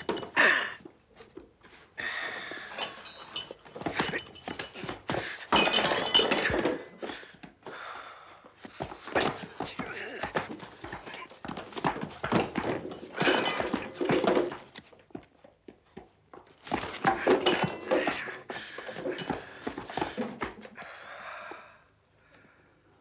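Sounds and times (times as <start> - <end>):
scuffle thuds and clatter: 8.6 - 15.3, 16.0 - 20.7.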